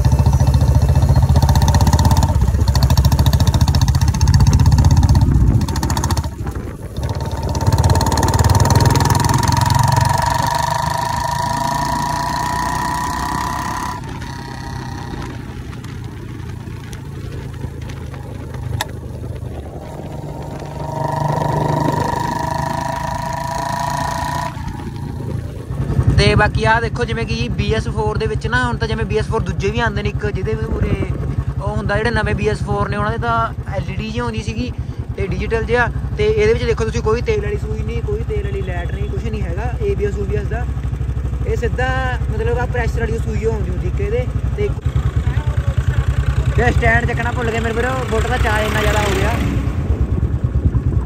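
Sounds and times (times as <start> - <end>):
motorcycle engine thumping: 0.0 - 28.7
exhaust crack: 0.0 - 51.0.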